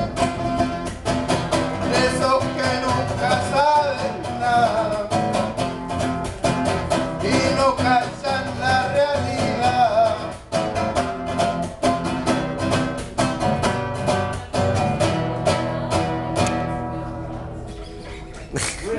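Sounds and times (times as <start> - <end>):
acoustic guitar strumming: 0.0 - 18.9
person singing: 1.7 - 5.4, 6.7 - 10.4.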